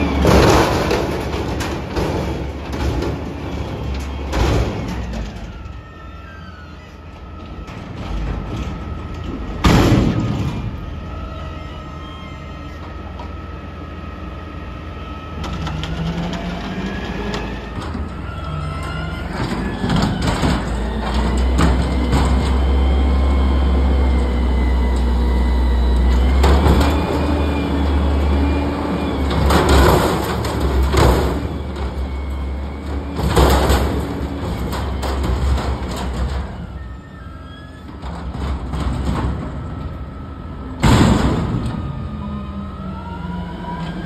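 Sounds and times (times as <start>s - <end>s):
truck engine revving: 0.0s - 5.4s, 13.5s - 37.0s
dumpster banging: 0.0s - 12.0s, 15.3s - 44.0s
hydraulic whine: 0.0s - 44.0s.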